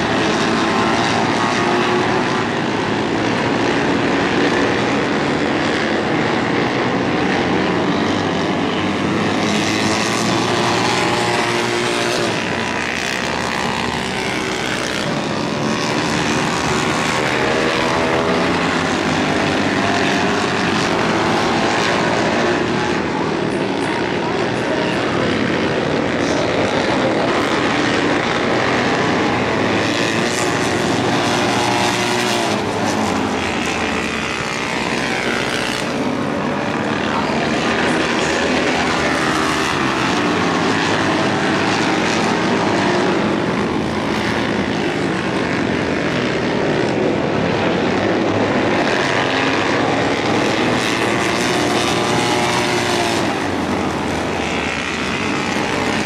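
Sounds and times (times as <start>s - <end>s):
racing motorcycle engines: 0.0s - 56.0s.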